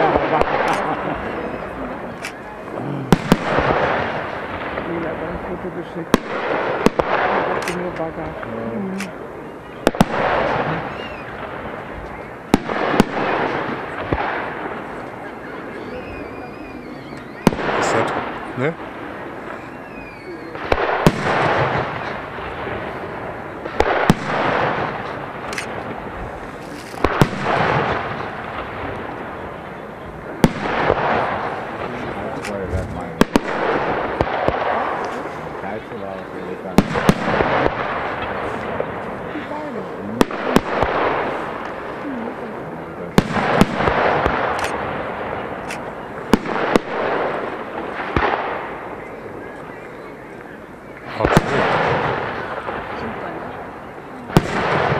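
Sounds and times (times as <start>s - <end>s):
firework shells bursting: 17.2s - 29.4s.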